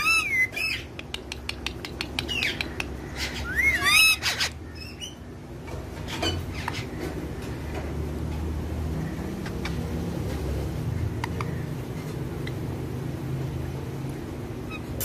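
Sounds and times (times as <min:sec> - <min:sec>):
parakeets calling: 0:00.0 - 0:01.0, 0:01.7 - 0:07.9, 0:08.8 - 0:13.4
sharp clicks: 0:00.9 - 0:03.0.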